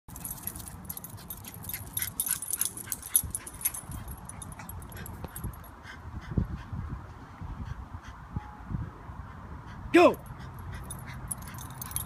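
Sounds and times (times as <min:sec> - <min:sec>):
light jingling: 0:00.1 - 0:05.8, 0:10.2 - 0:12.0.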